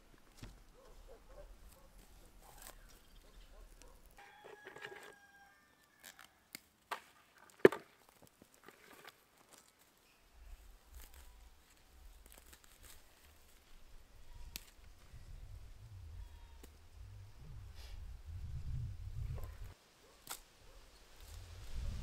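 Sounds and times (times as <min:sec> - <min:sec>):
low rumble: 0:15.1 - 0:19.7.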